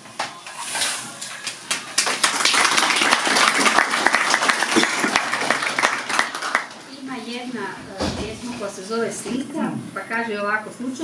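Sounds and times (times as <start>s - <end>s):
audience applauding: 1.4s - 6.8s.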